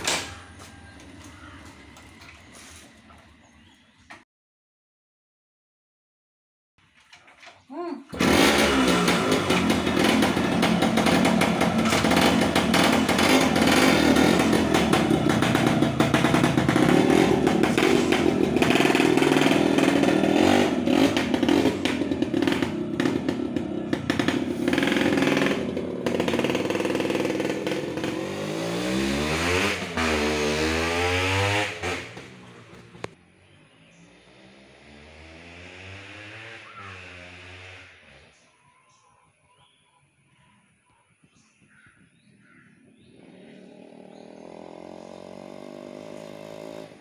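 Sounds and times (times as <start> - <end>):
motorcycle engine revving: 0.0 - 4.0, 7.7 - 39.0, 42.4 - 47.0
motorcycle pulling away: 0.0 - 4.2, 7.1 - 39.0, 42.4 - 47.0.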